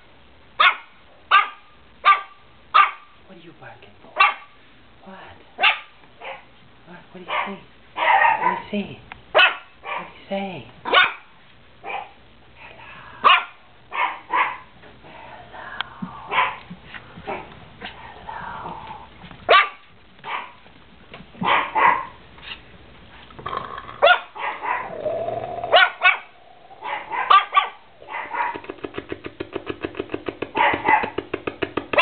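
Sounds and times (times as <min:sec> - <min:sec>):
puppy growling: 0:23.3 - 0:31.2
puppies yapping: 0:25.7 - 0:28.8.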